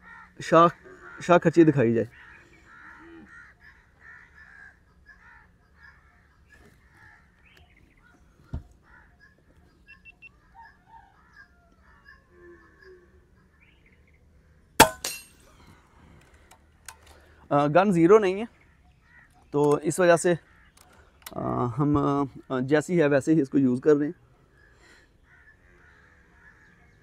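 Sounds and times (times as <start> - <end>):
birds calling faintly: 0.0 - 27.0.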